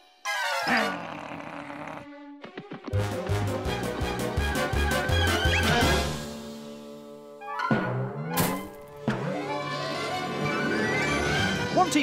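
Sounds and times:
cartoon background music: 0.0s - 12.0s.

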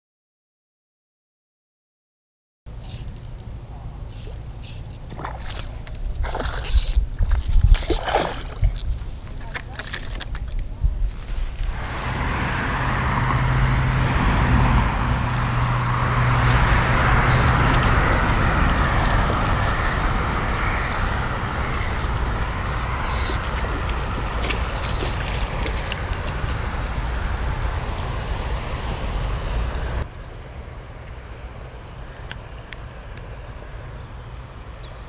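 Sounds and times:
low engine hum: 2.7s - 35.0s
cars passing: 11.5s - 35.0s.

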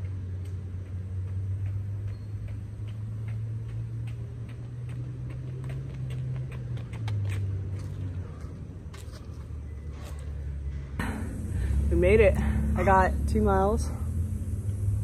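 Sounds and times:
running footsteps on pavement: 0.0s - 10.9s
steady low hum: 0.0s - 15.0s.

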